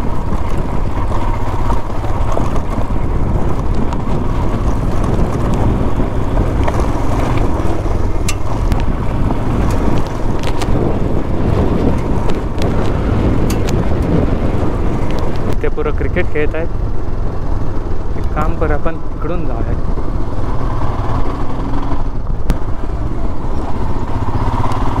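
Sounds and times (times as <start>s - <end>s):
motorcycle engine running: 0.0s - 25.0s
wind buffeting microphone: 0.0s - 25.0s
sharp clicks and knocks: 6.5s - 9.0s, 11.8s - 14.1s.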